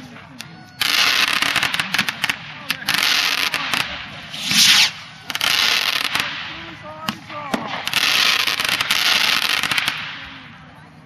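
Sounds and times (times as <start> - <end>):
fireworks hissing and crackling: 0.0 - 10.8
fireworks sharp cracks: 0.8 - 10.7.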